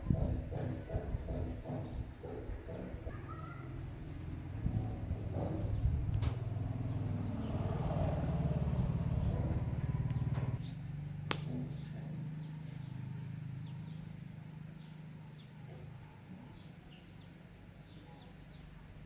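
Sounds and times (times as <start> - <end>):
low engine hum: 4.0 - 19.0.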